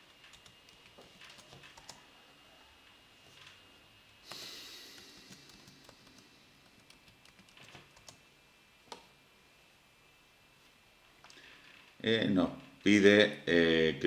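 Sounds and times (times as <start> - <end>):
keyboard typing: 0.2 - 2.0, 5.0 - 8.2.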